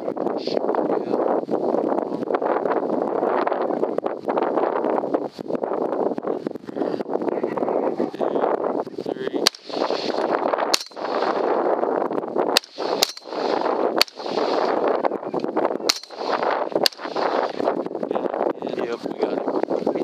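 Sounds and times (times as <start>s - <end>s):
wind noise on microphone: 0.0s - 20.0s
rifle shots: 9.4s - 11.5s, 12.6s - 14.8s, 15.9s - 17.5s.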